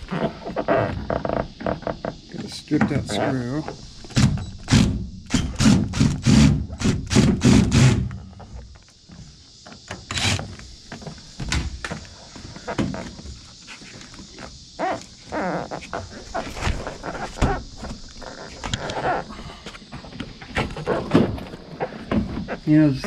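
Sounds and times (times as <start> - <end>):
knocks and thuds on metal floor: 4.1 - 8.2.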